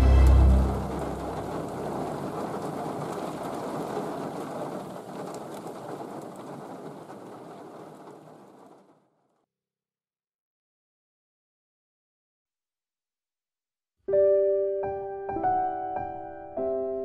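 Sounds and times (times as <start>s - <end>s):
rain falling on water: 0.0s - 9.4s.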